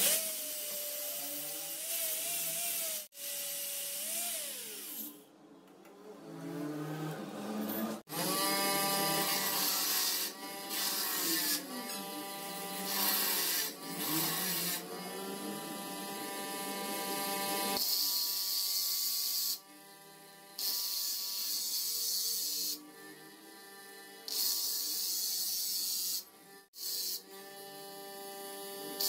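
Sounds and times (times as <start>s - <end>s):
grinder motor whining: 6.6s - 18.0s.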